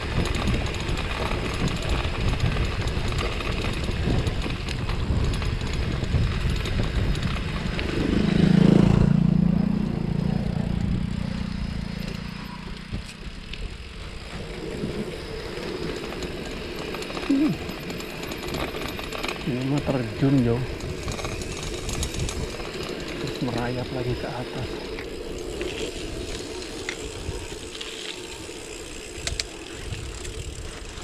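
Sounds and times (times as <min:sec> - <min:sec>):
bicycle rattling on rough ground: 0:00.0 - 0:31.0
loud low hum: 0:05.8 - 0:15.9.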